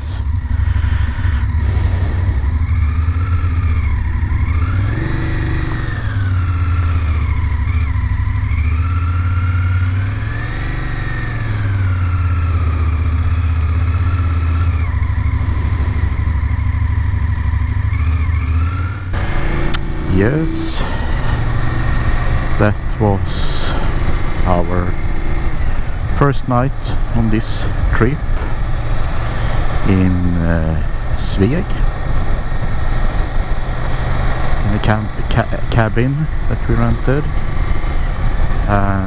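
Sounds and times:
motorcycle engine: 0.0 - 39.0.

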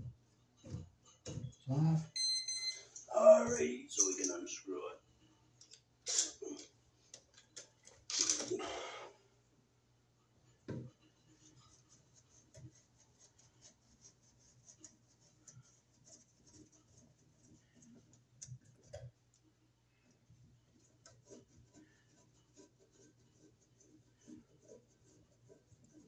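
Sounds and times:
knock: 10.7 - 10.9.

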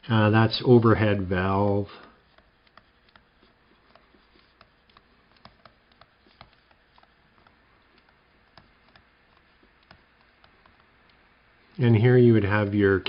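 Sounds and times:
stylus tapping on tablet: 2.3 - 11.2.

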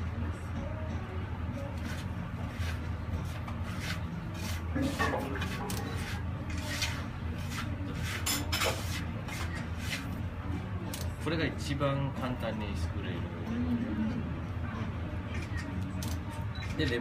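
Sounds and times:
hand scraping in clay bowl: 2.5 - 10.1.

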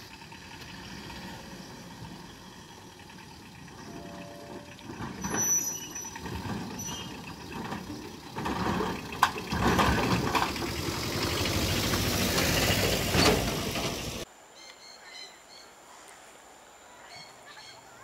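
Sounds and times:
truck engine and tyres rumbling: 0.0 - 14.3
truck knocking over rails: 3.7 - 14.2.

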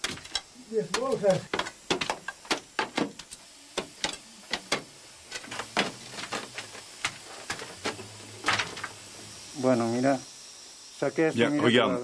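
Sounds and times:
pry bar tapping on rock: 0.0 - 4.9.

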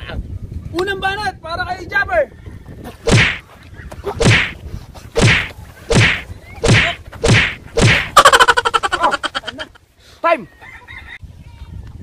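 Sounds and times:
loud fight whacks: 3.1 - 3.4, 4.2 - 4.6, 5.2 - 8.2
rattling flurry of hits buzzing: 5.2 - 8.3.

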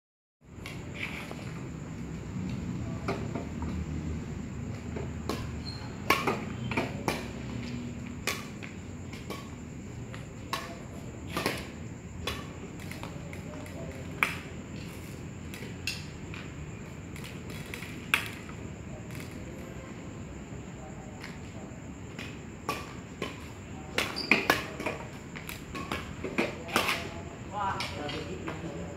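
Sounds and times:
rackets striking shuttlecock: 5.3 - 7.4.

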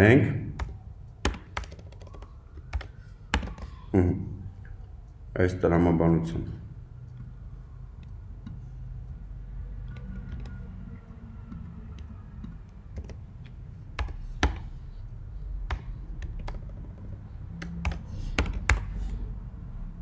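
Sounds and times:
low steady hum: 0.0 - 20.0
keyboard typing: 0.5 - 3.8, 9.8 - 14.8, 15.6 - 19.2.

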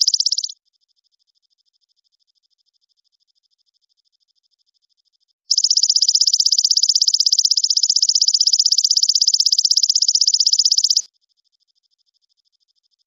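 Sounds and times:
animal high-pitched trill: 5.5 - 11.1.

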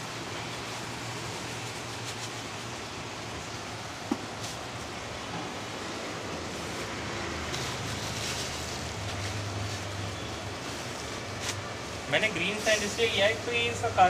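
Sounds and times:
steady hiss: 0.0 - 14.0
sand sprinkled into glass tank: 6.5 - 14.0.

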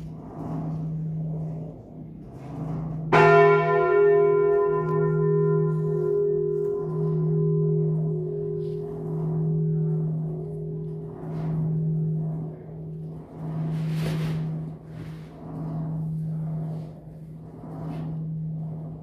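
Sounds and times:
deep hum of swinging bells: 0.0 - 19.0
bell clanging: 3.1 - 10.3.

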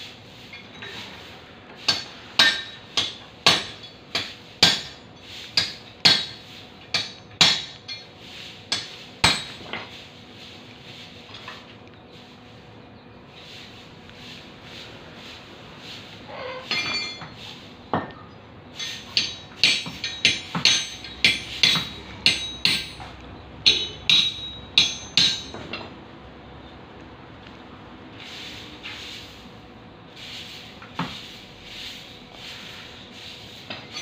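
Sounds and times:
hammer striking horseshoe: 1.9 - 8.1, 8.7 - 10.0, 16.5 - 18.1, 18.7 - 25.9, 33.6 - 34.0.

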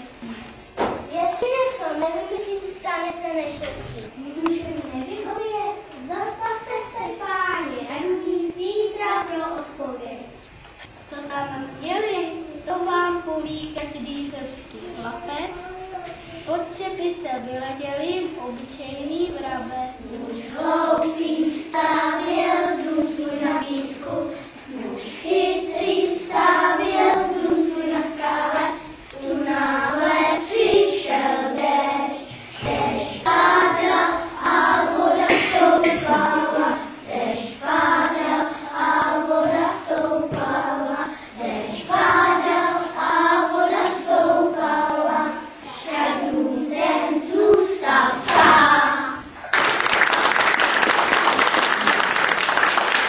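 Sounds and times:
children singing together: 19.4 - 49.4
audience applause: 49.4 - 53.0.

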